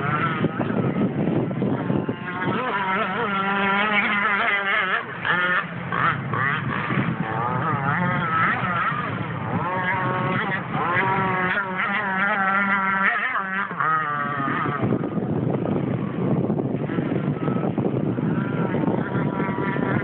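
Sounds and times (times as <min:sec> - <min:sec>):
model boat engine whining: 0:00.0 - 0:20.0.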